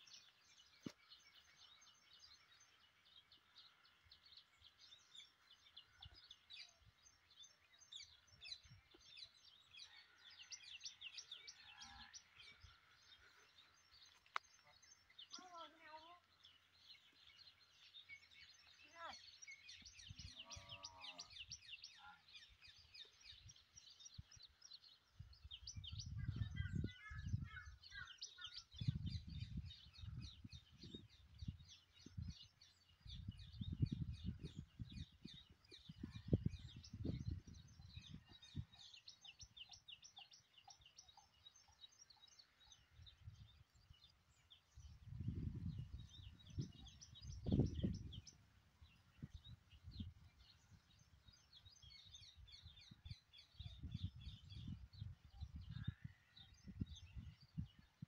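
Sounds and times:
birds chirping: 0.0 - 58.0
wind rumbling on microphone: 22.7 - 40.0, 42.9 - 58.0.

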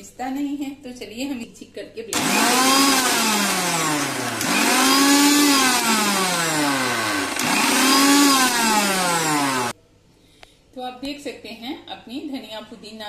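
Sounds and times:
mixer grinder motor: 2.2 - 9.8.

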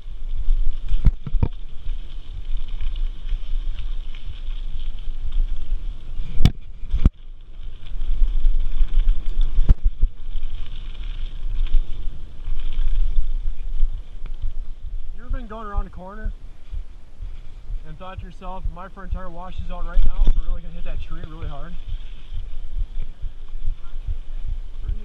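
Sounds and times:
bike knocking and rattling: 0.0 - 25.0
mountain bike rolling on dirt: 0.0 - 25.0
wind rumbling on microphone: 0.0 - 25.0.

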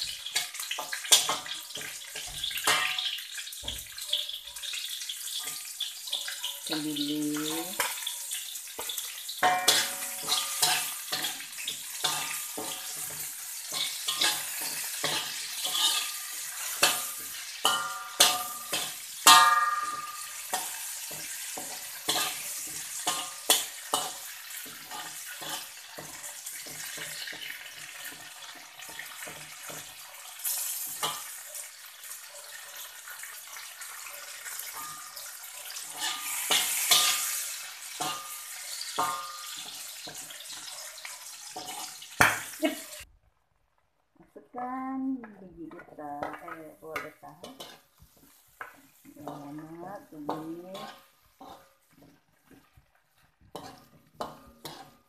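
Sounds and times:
metal spatula scraping and clinking: 0.0 - 6.8, 7.4 - 43.0, 45.7 - 55.0
food sizzling in oil: 0.0 - 43.1, 44.3 - 55.0.

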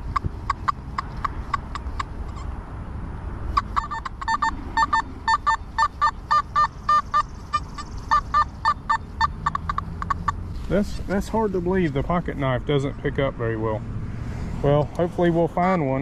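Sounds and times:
metal detector beeps: 0.0 - 2.6, 3.5 - 10.4.

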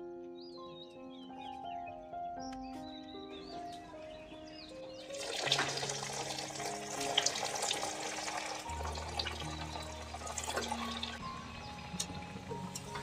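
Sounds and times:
food deep-frying in oil: 5.0 - 13.0
oil crackling and popping: 5.1 - 13.0.

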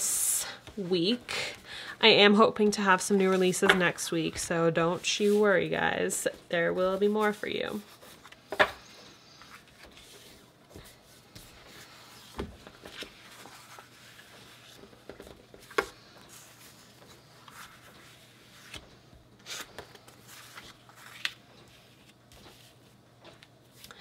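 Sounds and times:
paper rustling: 6.2 - 24.0.

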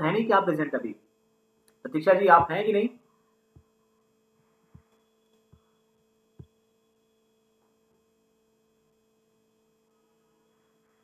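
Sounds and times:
faint steady hum: 0.0 - 11.0
soft low thumps: 2.3 - 2.6, 3.5 - 3.8, 6.3 - 6.6.

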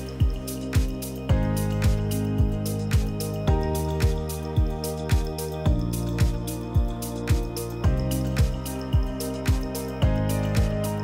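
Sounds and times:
pop music with deep kick drum: 0.0 - 11.0.

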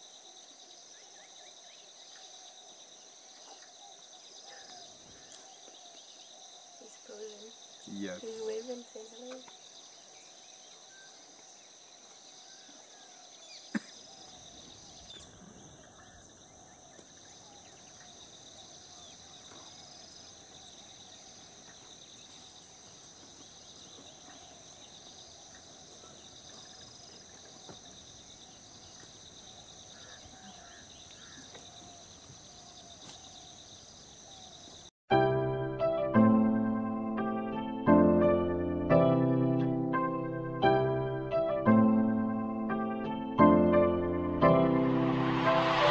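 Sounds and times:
faint bird chirps: 0.0 - 34.9
insects droning: 0.0 - 34.9.

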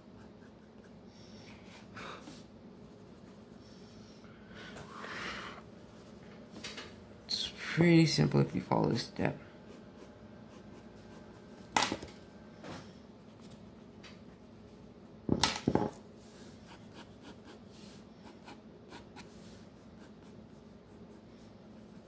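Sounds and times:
pencil scratching on paper: 0.0 - 1.0, 9.7 - 11.6, 16.6 - 22.0.

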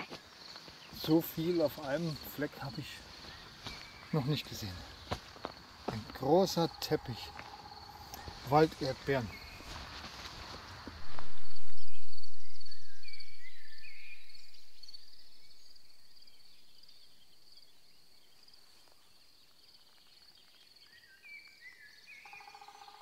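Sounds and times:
high pulsing insect trill: 0.0 - 20.4
short bird calls: 6.2 - 9.8.

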